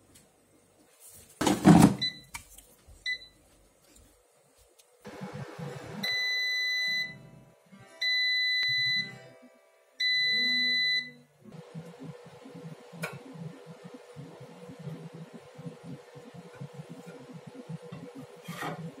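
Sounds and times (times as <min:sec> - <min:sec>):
air fryer long beeps: 0:05.1 - 0:07.3, 0:08.0 - 0:09.1, 0:10.0 - 0:18.4.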